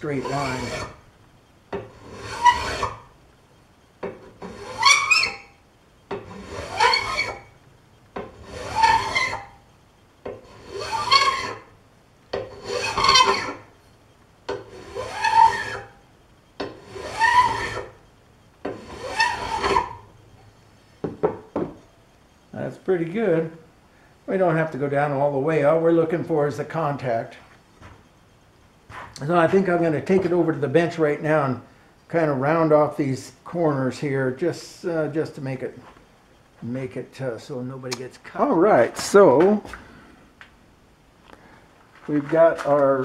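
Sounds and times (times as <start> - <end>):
hand file scraping metal: 0.0 - 1.0, 1.8 - 3.0, 4.0 - 7.5, 8.2 - 9.6, 10.3 - 11.7, 12.4 - 13.6, 14.5 - 16.0, 16.6 - 18.0, 18.6 - 20.0.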